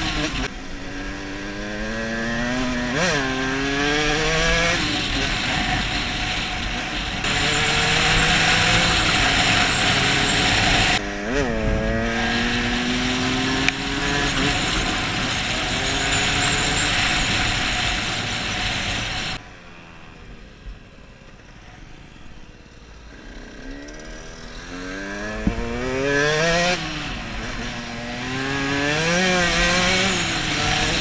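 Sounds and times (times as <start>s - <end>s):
dirt bike engine revving: 0.0s - 19.4s, 22.7s - 31.0s
wind rushing on microphone: 3.4s - 19.4s.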